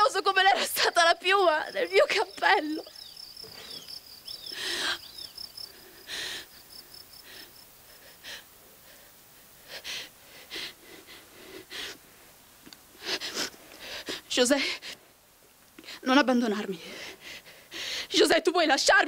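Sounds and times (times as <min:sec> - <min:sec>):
cricket chirping: 0:00.0 - 0:08.4
woman gasping and sobbing: 0:04.4 - 0:12.0, 0:16.8 - 0:18.2.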